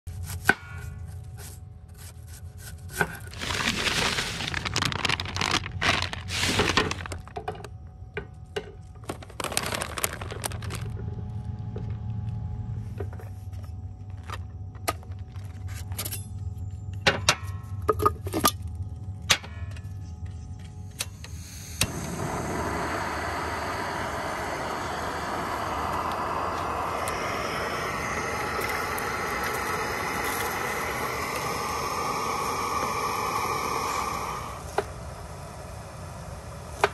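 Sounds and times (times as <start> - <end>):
rustling: 3.2 - 7.3
gas stove burner hissing: 20.8 - 36.9.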